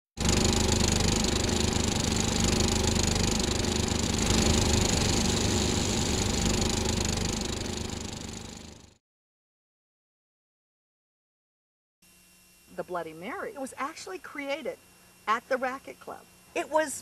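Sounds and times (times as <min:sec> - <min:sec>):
motor running with hum and whir: 0:00.1 - 0:09.0, 0:12.0 - 0:13.6.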